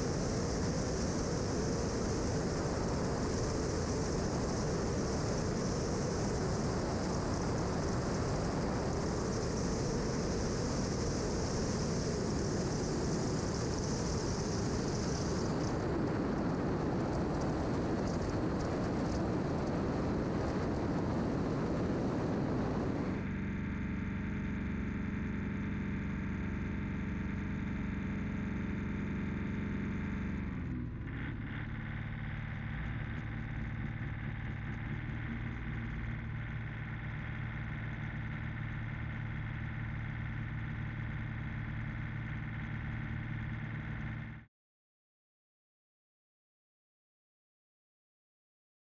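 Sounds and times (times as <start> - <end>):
aircraft engines humming: 0.0 - 23.2.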